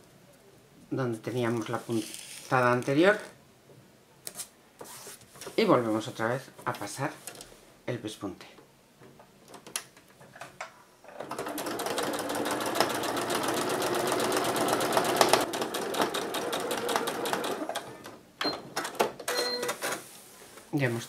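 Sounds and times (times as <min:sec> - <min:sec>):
sewing machine stitching: 0:11.1 - 0:18.2.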